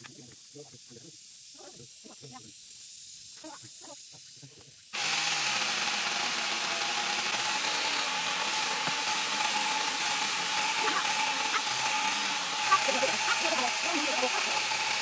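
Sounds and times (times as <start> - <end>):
cordless chainsaw motor whine: 4.9 - 15.0
chainsaw chain rattle: 5.0 - 15.0.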